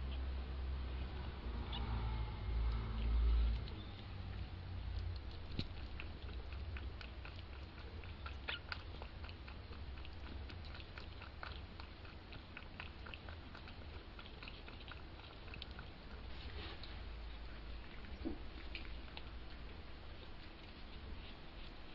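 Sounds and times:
steady low hum: 0:00.0 - 0:21.9
kittens' claws scratching: 0:02.2 - 0:17.5.

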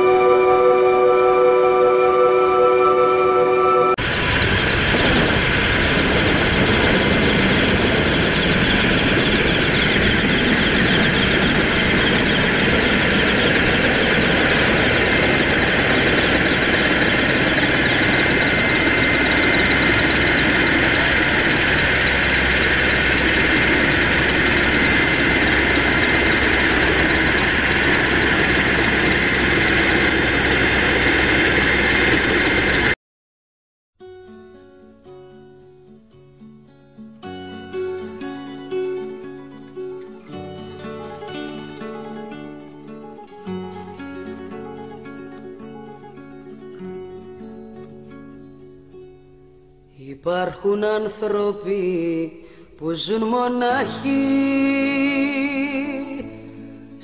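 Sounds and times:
constant high whine: 0:03.0 - 0:33.0
helicopter engines and rotor: 0:04.0 - 0:33.0.

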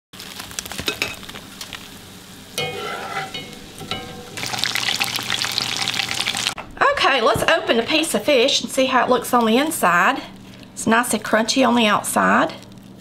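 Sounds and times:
fish frying in hot oil: 0:00.2 - 0:06.6.

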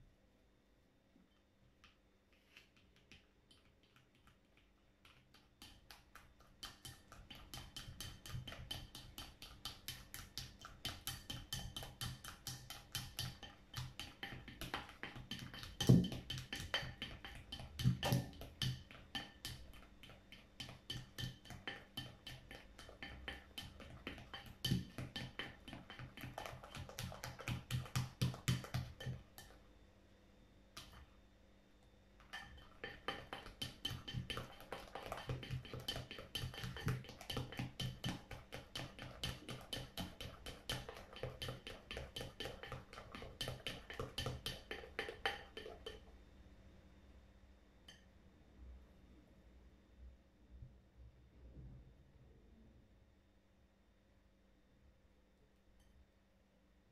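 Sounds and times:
spatula stirring wet slime: 0:01.7 - 0:29.8, 0:30.7 - 0:31.2, 0:32.2 - 0:46.2
spatula tapping and scraping bowl: 0:01.8 - 0:29.7, 0:30.8 - 0:31.1, 0:32.2 - 0:46.1.

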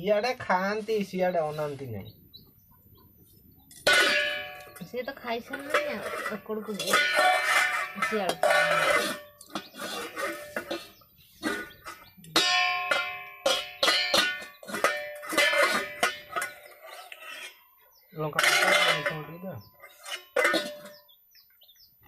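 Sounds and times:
metal pots and lids clanking: 0:03.7 - 0:17.6, 0:18.2 - 0:21.2.

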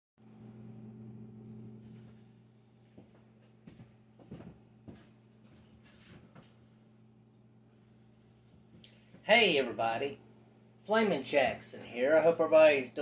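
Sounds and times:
low hum: 0:00.2 - 0:12.4
soft knocks and shuffling: 0:01.8 - 0:06.8, 0:08.2 - 0:09.3.

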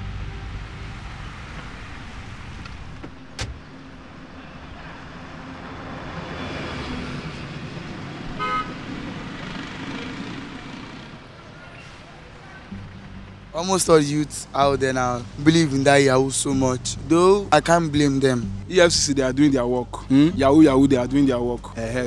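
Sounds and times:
cars driving past: 0:00.0 - 0:22.0
vehicle horn toot: 0:08.4 - 0:08.9.

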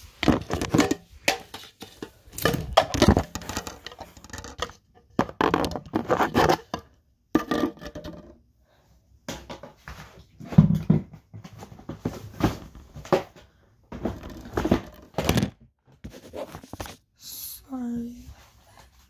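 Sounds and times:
objects rustling and knocking: 0:00.0 - 0:08.4, 0:09.2 - 0:17.1.

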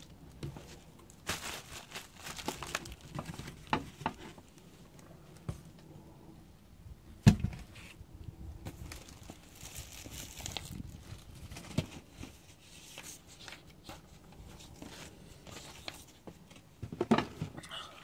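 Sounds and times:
cardboard boxes rustling and scraping: 0:11.0 - 0:17.6.

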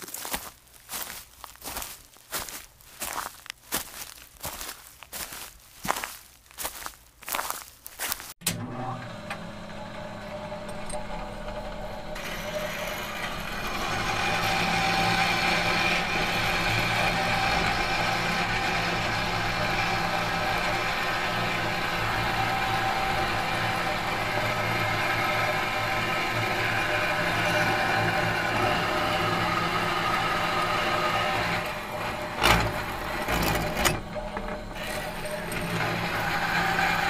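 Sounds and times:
machine motor humming: 0:08.4 - 0:37.0.

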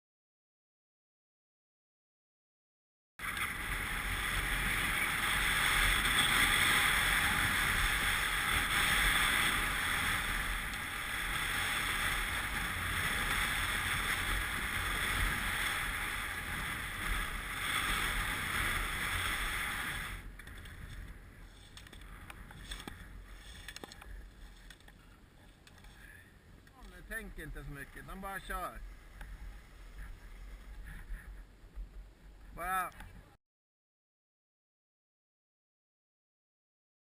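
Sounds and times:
skis scraping over snow: 0:03.2 - 0:32.6.

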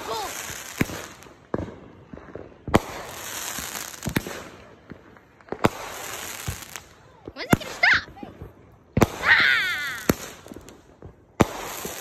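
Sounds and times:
fireworks bangs: 0:00.0 - 0:12.0
crackling sparks: 0:09.0 - 0:12.0.

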